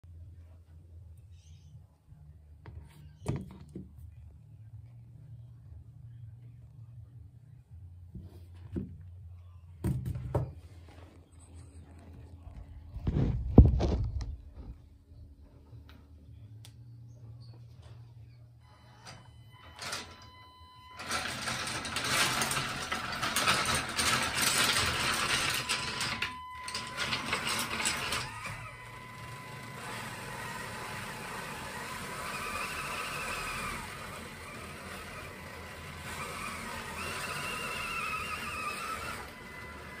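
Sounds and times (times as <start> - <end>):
toy car electric motor whining: 20.9 - 40.0.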